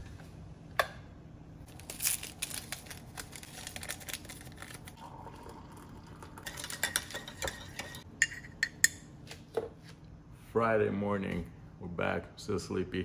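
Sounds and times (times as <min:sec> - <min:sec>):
paper packet tearing and crinkling: 0:01.7 - 0:05.0
hot water pouring into mug: 0:05.0 - 0:06.9
metal spoon clinking in mug: 0:06.4 - 0:09.0.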